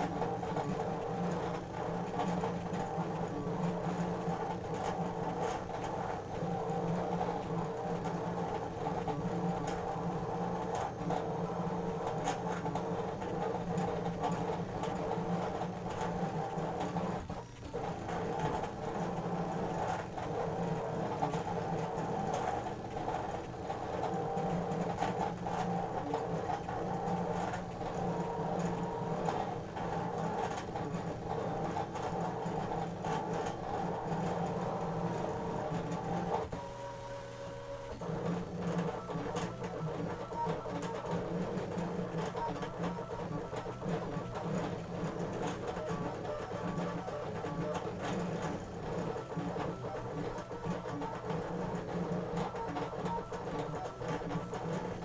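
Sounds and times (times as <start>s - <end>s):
cutting machine motors whirring: 0.0s - 55.0s
machine clicks: 37.9s - 55.0s.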